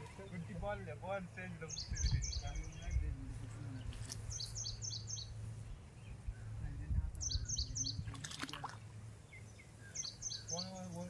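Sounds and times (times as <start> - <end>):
low steady hum: 0.0 - 11.0
bird chirping: 1.4 - 11.0
brief rustle: 3.9 - 4.3.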